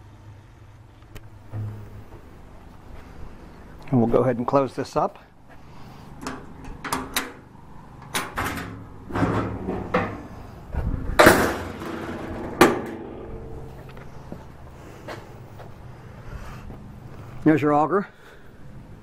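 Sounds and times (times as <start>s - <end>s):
latch click: 6.2s - 7.4s
metal lid knocks and clanks: 8.1s - 10.4s, 11.2s - 14.2s.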